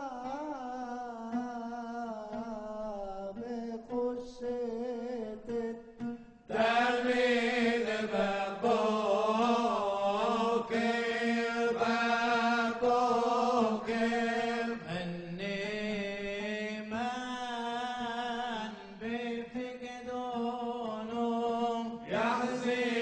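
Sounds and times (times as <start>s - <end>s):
men chanting melismatically: 6.5s - 17.8s, 21.2s - 23.0s.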